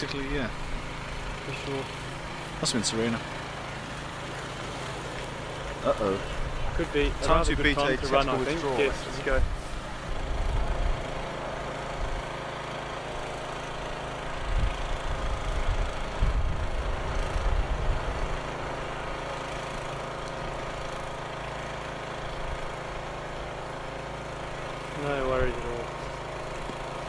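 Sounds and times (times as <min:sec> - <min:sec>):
engine idling: 0:00.0 - 0:27.0
low rumbling on microphone: 0:14.4 - 0:18.4.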